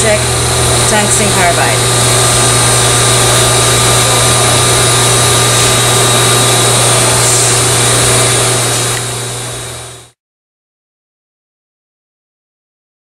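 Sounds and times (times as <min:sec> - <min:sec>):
machinery hiss: 0:00.0 - 0:10.0
low machinery hum: 0:00.0 - 0:10.1
thin high whines: 0:00.0 - 0:10.1.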